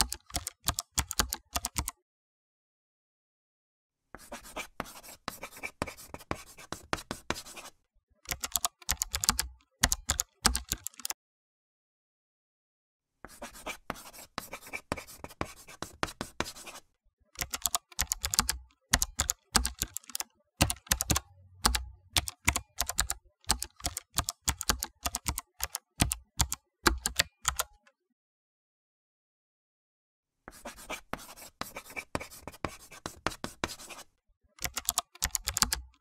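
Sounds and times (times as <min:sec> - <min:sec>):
typing on a computer keyboard: 0:00.0 - 0:02.0, 0:08.2 - 0:11.2, 0:17.4 - 0:27.9, 0:34.6 - 0:36.0.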